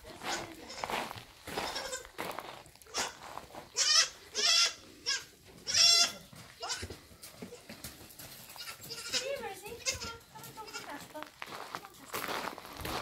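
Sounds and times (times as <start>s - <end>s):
goats bleating: 0.1s - 0.9s, 1.5s - 2.2s, 2.8s - 7.8s, 8.5s - 11.1s.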